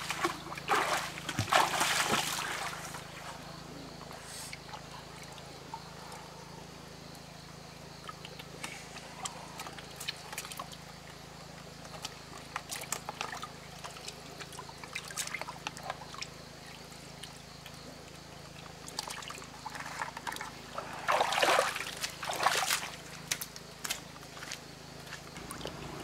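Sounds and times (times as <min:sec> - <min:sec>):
fish splashing in bucket: 0:00.0 - 0:03.2, 0:18.7 - 0:23.5
water sloshing: 0:00.0 - 0:03.6, 0:18.6 - 0:24.6.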